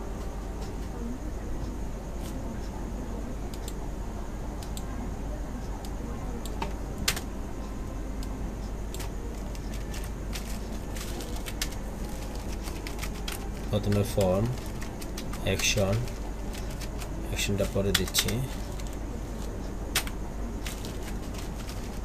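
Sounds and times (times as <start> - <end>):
background hiss and hum: 0.0 - 22.0
keyboard keystrokes and clicks: 8.9 - 22.0.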